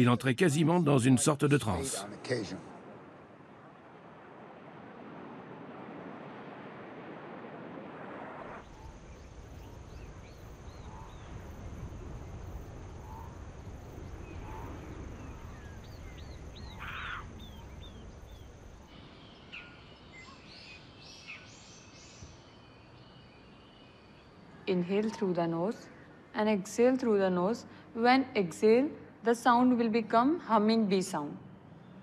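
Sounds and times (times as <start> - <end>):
birds chirping and calling: 15.3 - 22.3.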